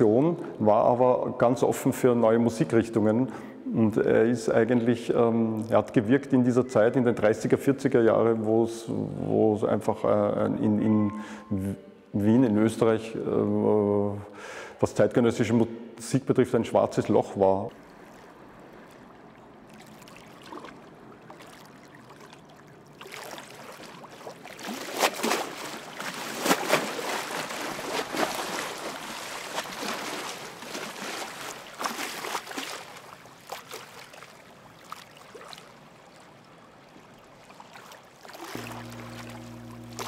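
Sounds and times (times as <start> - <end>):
river water lapping and splashing: 16.9 - 40.0.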